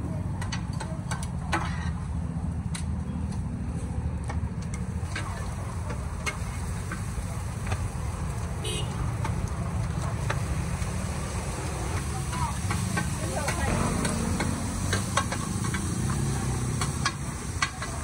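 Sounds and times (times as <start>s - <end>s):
low rumble of street stall: 0.0s - 18.0s
metal utensils clicking and clinking: 12.0s - 18.0s.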